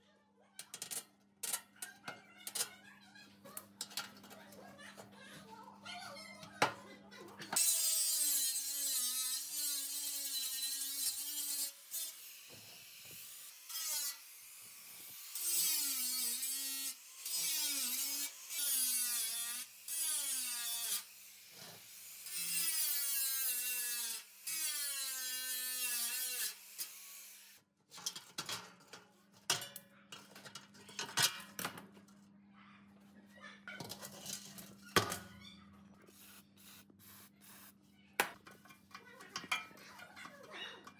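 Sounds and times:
angle grinder cutting metal: 7.6s - 27.6s, 36.2s - 37.7s.

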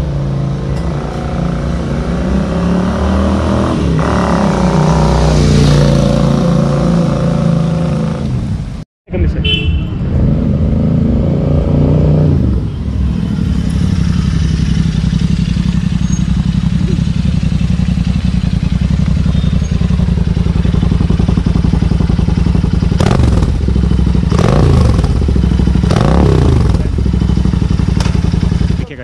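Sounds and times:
motorcycle engine idling: 13.2s - 29.0s.

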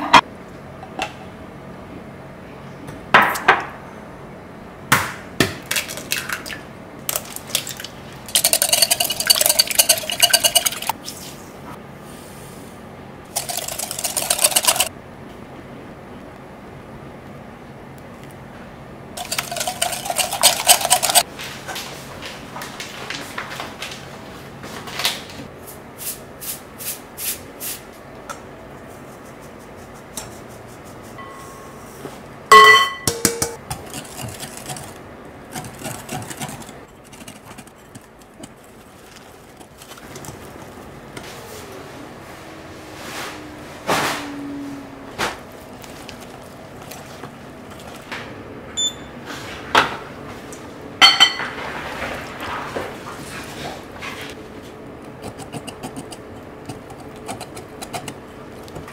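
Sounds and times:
steel bowl clinking on glass: 8.3s - 10.9s, 13.4s - 14.9s, 19.2s - 21.2s, 32.5s - 33.6s
whisk clicking against glass bowl: 8.3s - 10.9s, 13.4s - 14.9s, 19.2s - 21.2s.

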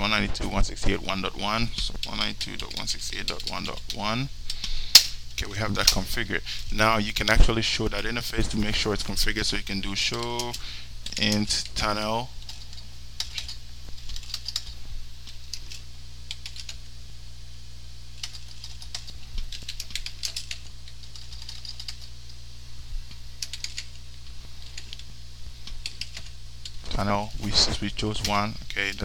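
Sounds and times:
low electrical hum: 0.0s - 29.0s
typing on computer keyboard: 12.4s - 14.8s, 15.4s - 16.8s, 18.2s - 22.1s, 23.4s - 24.0s, 25.8s - 26.3s.

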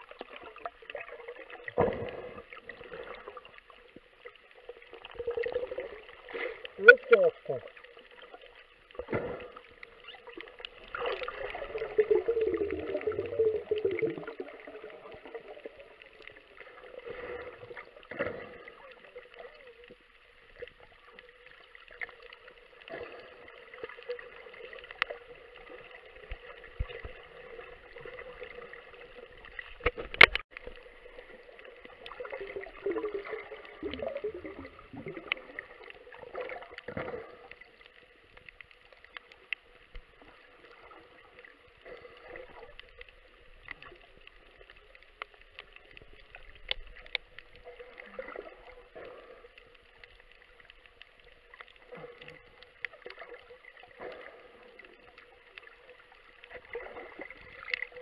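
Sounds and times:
underwater clicks and crackles: 0.0s - 58.0s
underwater gurgling: 0.0s - 58.0s.

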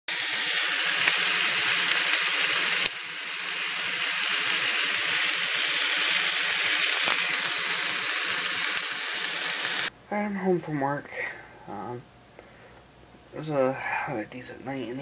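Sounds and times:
chicken sizzling in skillet: 0.1s - 9.9s.

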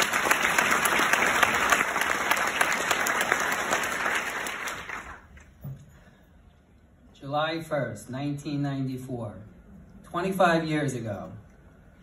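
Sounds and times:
audience applause: 0.0s - 5.3s.

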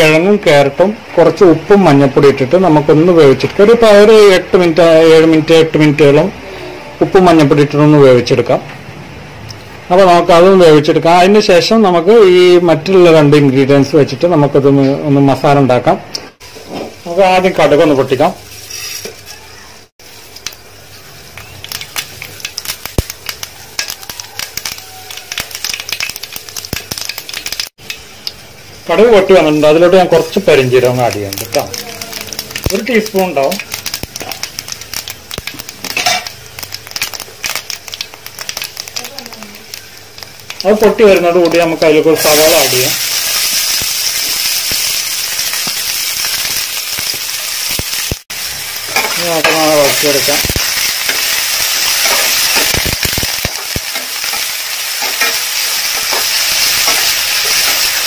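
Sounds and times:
seeds sizzling in hot oil: 16.4s - 58.0s
oil popping: 21.3s - 28.4s, 30.6s - 42.0s
sharp pops: 52.0s - 54.1s.

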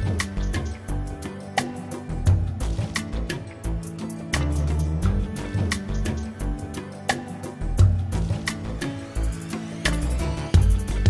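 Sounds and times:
background music with drum beat: 0.0s - 11.0s
deep bass notes: 2.1s - 6.7s, 7.6s - 11.0s.

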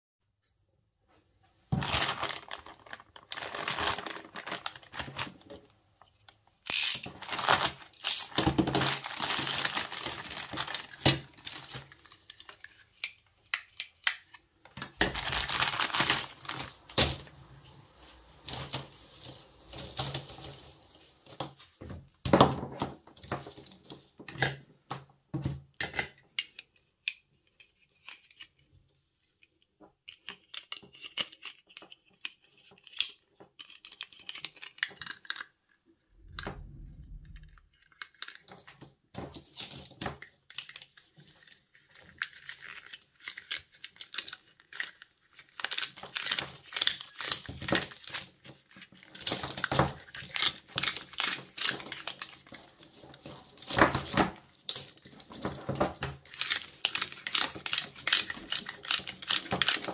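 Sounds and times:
plastic crackling and rustling: 1.6s - 24.2s, 26.4s - 59.9s
plastic cable wrap clicks and rustles: 1.7s - 24.6s, 25.8s - 59.9s
low thud: 36.2s - 37.7s.

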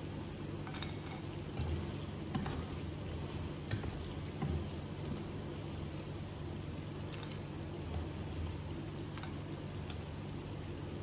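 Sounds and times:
fries sizzling in oil: 0.0s - 11.0s.

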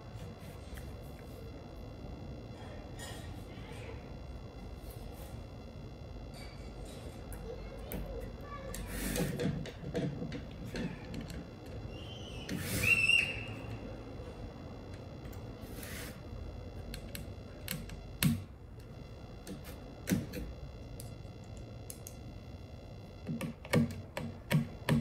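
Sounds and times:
hard plastic clicking and tapping: 23.2s - 25.0s.

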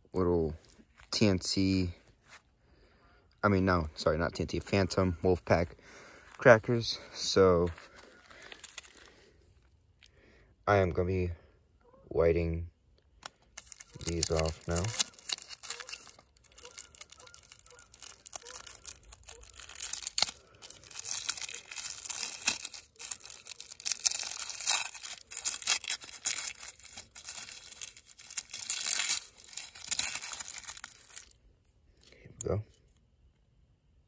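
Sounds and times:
paper wrapper tearing and crinkling: 7.6s - 9.3s, 13.2s - 31.4s.

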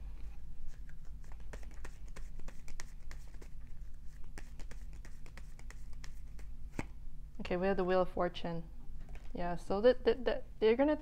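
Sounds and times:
low steady hum: 0.0s - 11.0s
cards being shuffled: 0.6s - 7.0s.

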